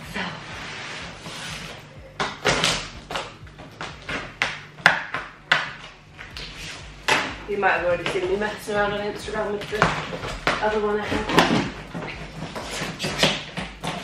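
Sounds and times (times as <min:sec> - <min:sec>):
packing tape ripping: 0:02.4 - 0:03.3.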